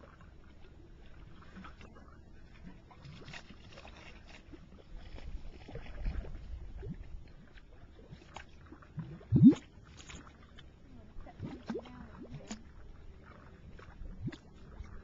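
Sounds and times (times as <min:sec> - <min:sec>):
mud bubbling and plopping: 0:02.6 - 0:10.6, 0:11.2 - 0:15.0.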